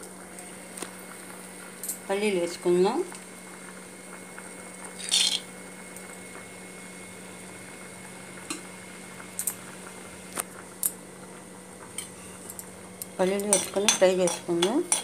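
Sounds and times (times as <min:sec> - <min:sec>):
peanuts dropped into hot oil: 0:05.0 - 0:05.4.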